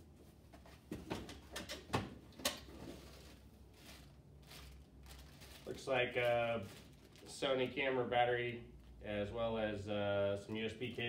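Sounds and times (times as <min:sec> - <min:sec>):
items handled in a foam case: 0:02.6 - 0:07.3.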